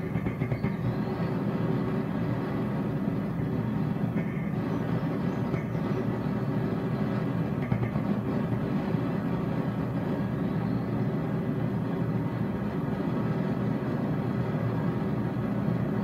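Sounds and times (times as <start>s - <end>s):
torch flame roaring: 0.0s - 16.0s.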